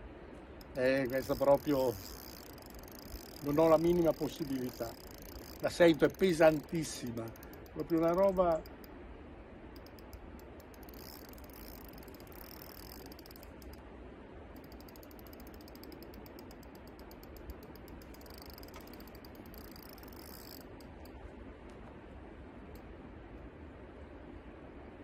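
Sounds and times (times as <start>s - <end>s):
fishing reel drag clicking: 0.6s - 8.9s, 9.8s - 13.8s, 14.6s - 21.2s.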